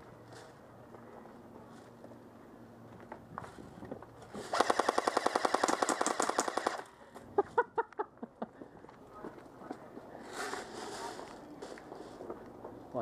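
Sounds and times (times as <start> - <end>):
airsoft rifle full-auto burst: 4.5 - 6.9.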